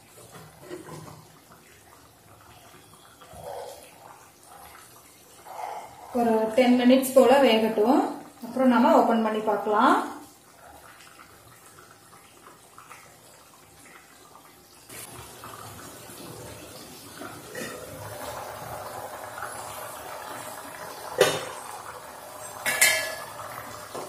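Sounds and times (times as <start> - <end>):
gravy bubbling in a pot: 0.0 - 24.0
pot lid clanking: 22.6 - 23.4.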